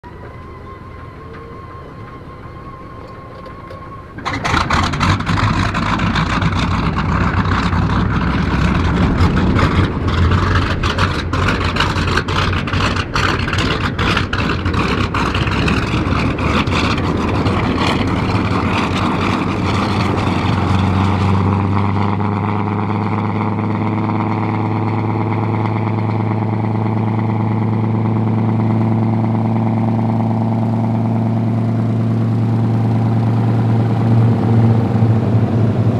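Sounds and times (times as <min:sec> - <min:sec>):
aircraft engine starting and idling: 0:00.0 - 0:35.9.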